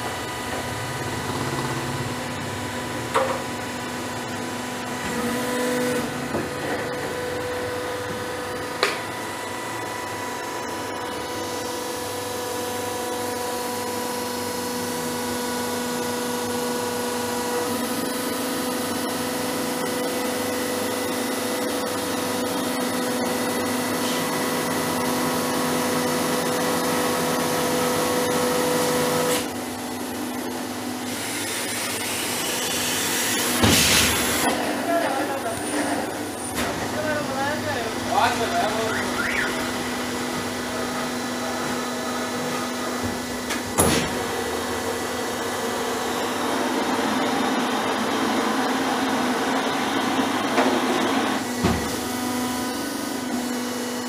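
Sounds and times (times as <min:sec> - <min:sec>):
hydraulic press motor whining: 0:29.2 - 0:48.2.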